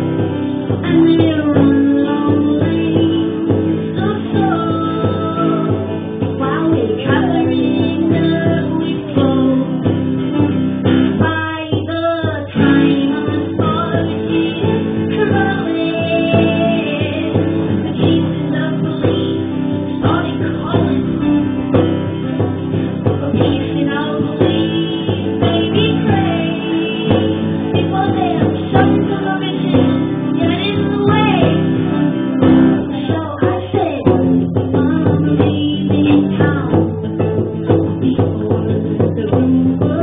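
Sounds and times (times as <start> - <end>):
acoustic guitar strumming: 0.0 - 40.0
person singing: 0.0 - 40.0.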